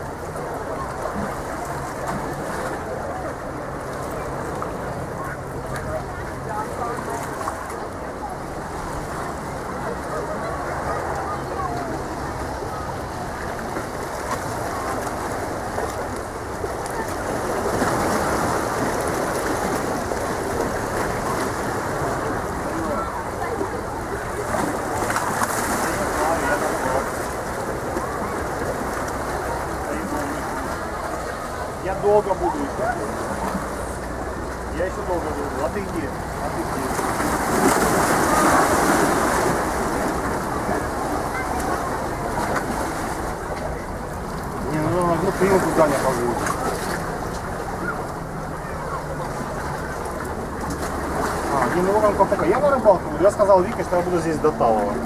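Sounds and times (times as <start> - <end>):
waves splashing against boulders: 0.0 - 55.0
water washing against rocks: 12.0 - 55.0.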